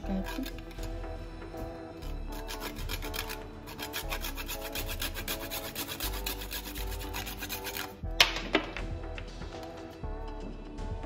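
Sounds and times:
nutmeg scraping on metal grater: 0.0 - 1.0, 2.0 - 8.0.

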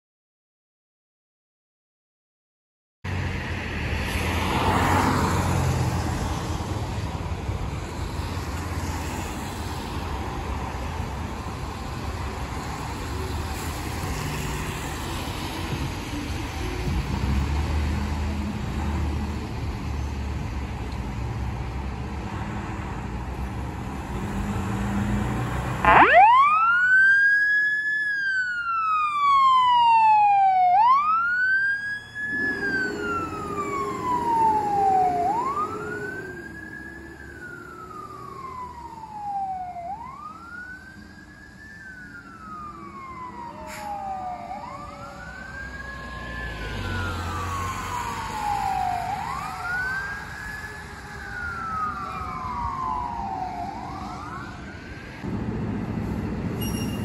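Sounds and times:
cars hissing on wet road: 3.1 - 6.6
fire engine siren wailing: 24.8 - 55.4
low steady siren tone: 25.8 - 57.0.

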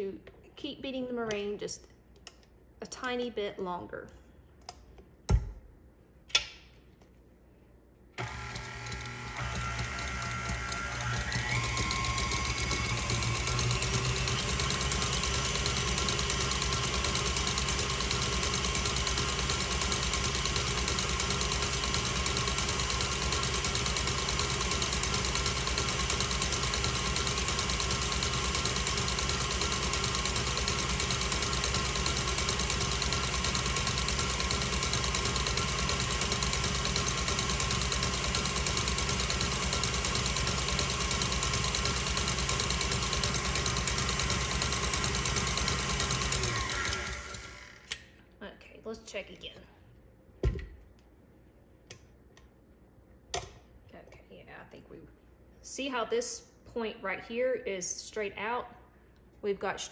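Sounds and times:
electric mixer whisking: 8.2 - 48.0.

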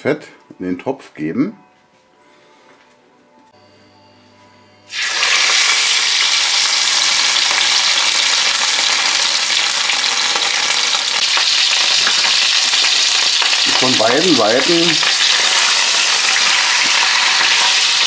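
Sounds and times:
meat sizzling in a roasting pan: 4.9 - 18.0.

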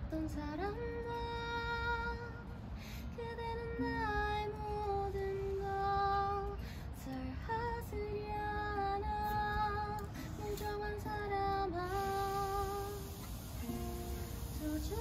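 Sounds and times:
woman singing: 0.0 - 2.5, 3.1 - 15.0
acoustic guitar strumming: 11.1 - 15.0.

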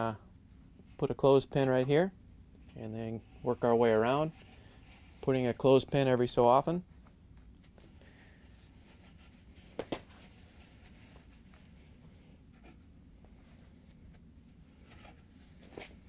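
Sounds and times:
rubbing and scuffing of felt seal: 8.5 - 14.0.

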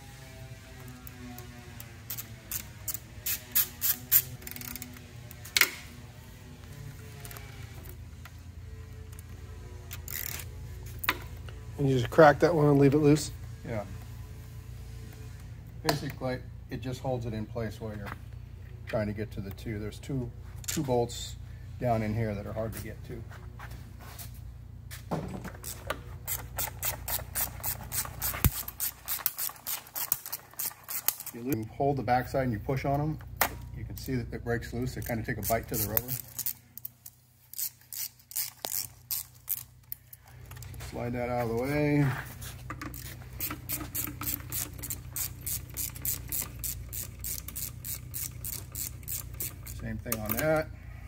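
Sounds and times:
screwdriver loosening hose clamp clicks: 42.8 - 50.6.

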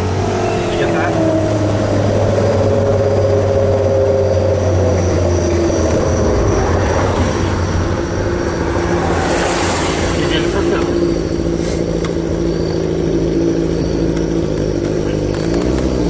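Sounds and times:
car engine drone: 0.0 - 16.0
road noise inside car: 0.0 - 16.0.

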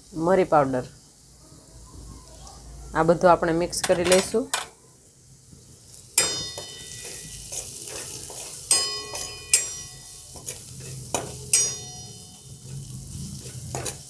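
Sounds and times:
food sizzling in oil: 0.0 - 14.0
spatula clinking against pan: 6.2 - 12.8.

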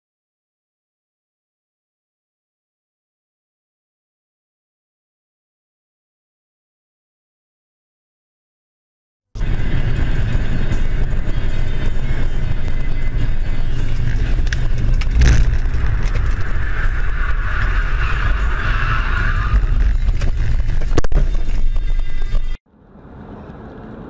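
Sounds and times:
car interior road rumble: 9.4 - 24.0.

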